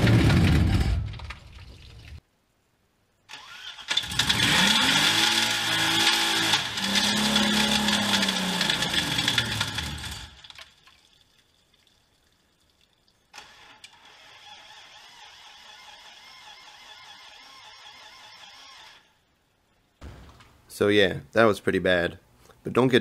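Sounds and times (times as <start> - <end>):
car engine revving with clunking knocks: 4.0 - 10.5.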